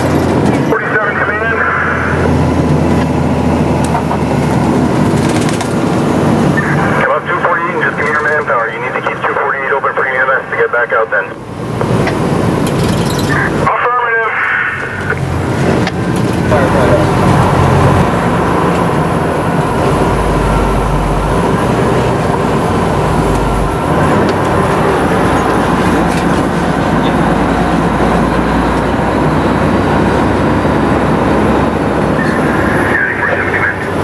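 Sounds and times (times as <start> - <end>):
diesel engine and road noise: 0.0 - 34.0.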